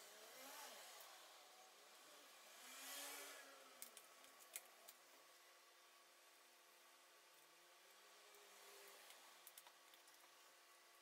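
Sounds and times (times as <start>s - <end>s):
small clicks: 3.8s - 5.0s, 7.3s - 10.4s.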